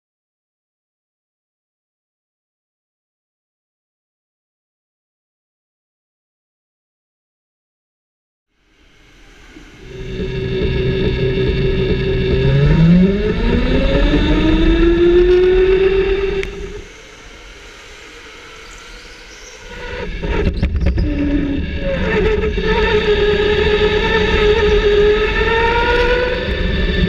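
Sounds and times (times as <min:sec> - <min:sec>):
electric go-kart motor whining: 0:08.7 - 0:27.0.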